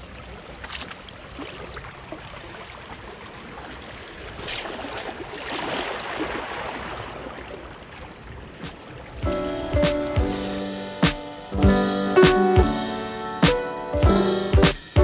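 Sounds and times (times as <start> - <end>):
waves lapping against rocks: 0.0 - 9.2.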